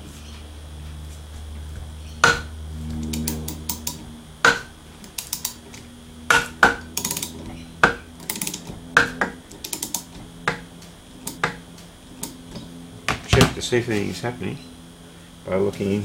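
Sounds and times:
ratcheting spanner clicking: 2.9s - 5.8s, 6.8s - 8.7s, 9.5s - 10.2s, 11.2s - 12.4s.

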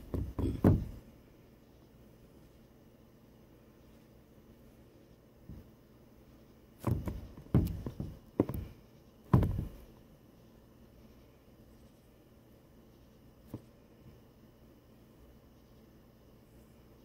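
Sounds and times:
phone knocking and thumping: 0.0s - 1.0s, 6.8s - 8.7s, 9.3s - 9.8s.

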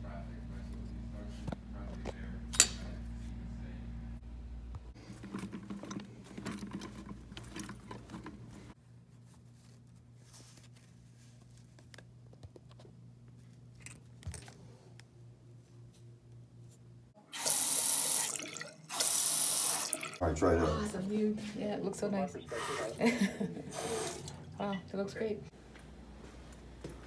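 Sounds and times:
water running from faucet: 17.3s - 20.2s, 23.7s - 24.4s.

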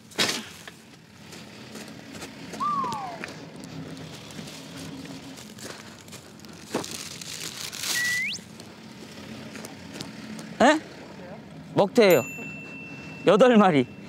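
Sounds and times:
comic slide whistle: 2.6s - 3.4s, 7.9s - 8.4s
crinkling and rustling: 3.6s - 8.7s.

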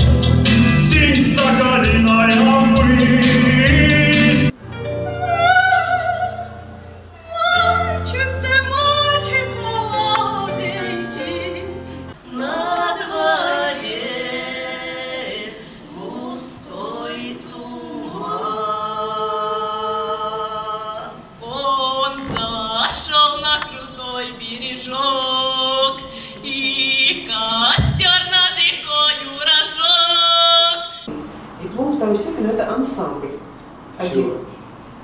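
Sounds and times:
low steady drone: 0.4s - 4.6s
women singing in close harmony: 5.2s - 31.0s.

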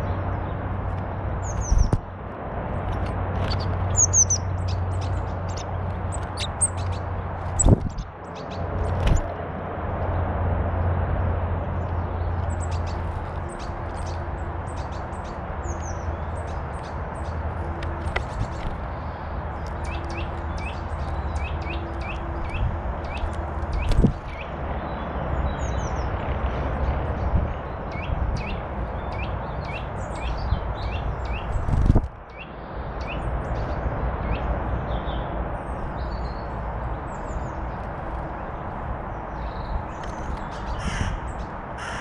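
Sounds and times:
wild birds calling: 2.9s - 9.3s, 39.1s - 42.0s
higher bird chirps: 3.4s - 7.8s.

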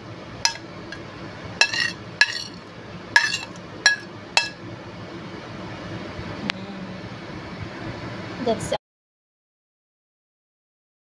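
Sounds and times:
metal utensil scraping a plate: 1.6s - 2.6s, 3.2s - 4.6s.

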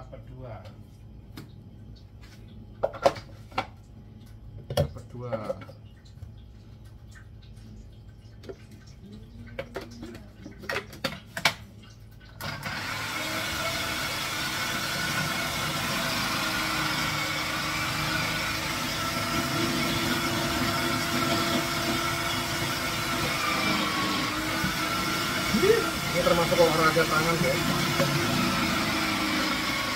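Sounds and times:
food processor motor running: 12.4s - 29.9s.

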